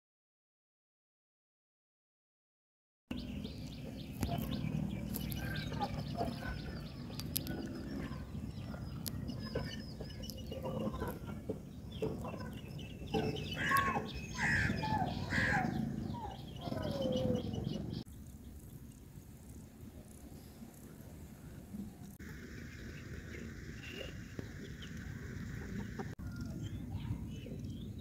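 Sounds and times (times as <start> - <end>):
birds chirping: 3.1 - 28.0
loud short falling bird calls: 13.1 - 17.4.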